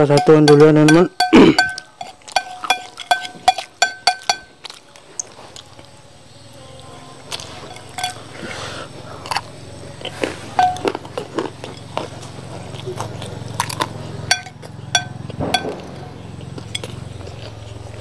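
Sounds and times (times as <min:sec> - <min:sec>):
cutlery clinking on plate: 0:00.0 - 0:04.5, 0:07.4 - 0:08.3, 0:10.5 - 0:12.0, 0:13.6 - 0:16.0, 0:16.6 - 0:17.0
soft chewing: 0:01.2 - 0:18.0.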